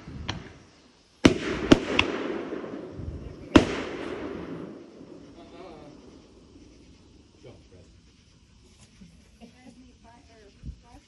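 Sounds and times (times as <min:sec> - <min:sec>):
fireworks bangs: 0:00.0 - 0:06.6
fireworks crackling and rumbling: 0:00.0 - 0:07.5.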